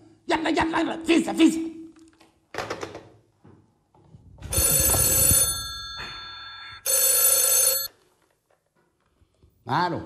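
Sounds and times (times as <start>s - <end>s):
telephone bell ringing: 4.5s - 8.0s.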